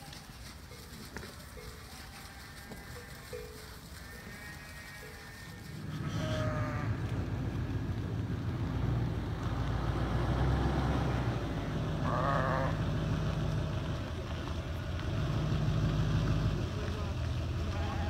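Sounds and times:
sheep bleating: 1.6 - 7.1, 12.0 - 12.8, 17.6 - 18.0
steady low rumble: 5.8 - 10.1.

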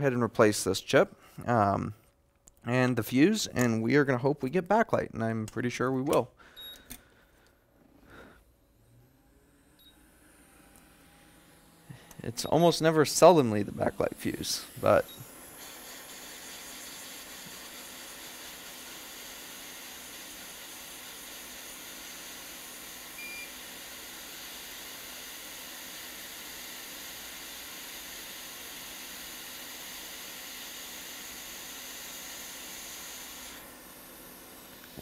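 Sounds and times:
short beep: 6.6 - 6.9
hot air blower hissing: 10.2 - 35.0.

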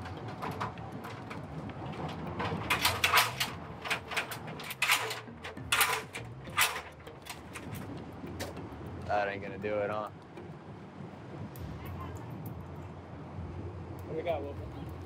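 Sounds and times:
metal ladder clanking and rattling: 0.0 - 8.6.

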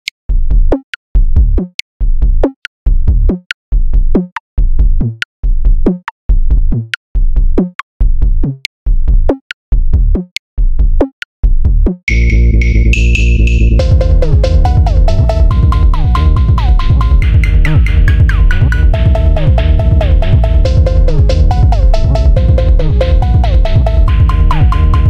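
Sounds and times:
heavy synth bass hits: 12.1 - 25.0.

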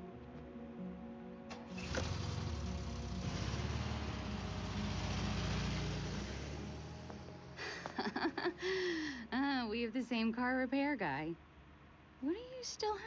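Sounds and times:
low engine-like rumbling: 1.5 - 8.6.

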